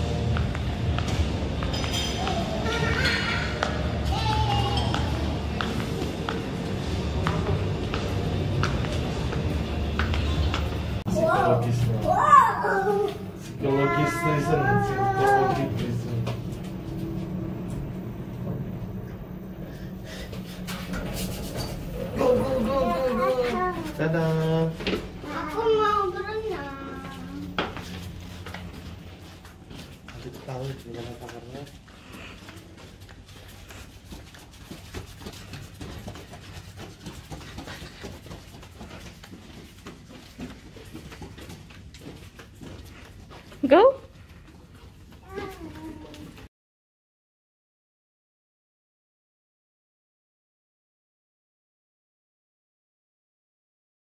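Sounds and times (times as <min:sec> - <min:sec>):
steady low hum: 0:00.0 - 0:46.5
lift humming: 0:14.0 - 0:24.0
footsteps on carpet: 0:22.2 - 0:46.5
child's sing-song voice: 0:22.8 - 0:24.0, 0:25.3 - 0:27.5, 0:45.2 - 0:46.4.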